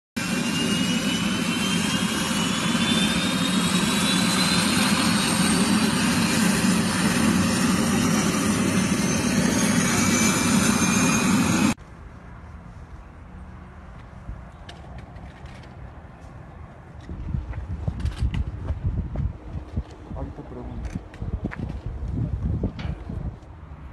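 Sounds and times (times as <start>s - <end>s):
helicopter turbine engine whine: 0.2s - 11.8s.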